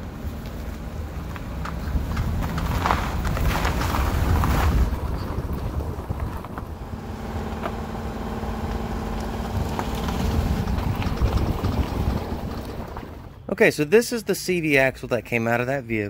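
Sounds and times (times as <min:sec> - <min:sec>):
car engine running: 0:00.0 - 0:13.5
tyres crunching on gravel: 0:00.1 - 0:13.6
wind on microphone: 0:03.1 - 0:07.0, 0:09.5 - 0:13.4.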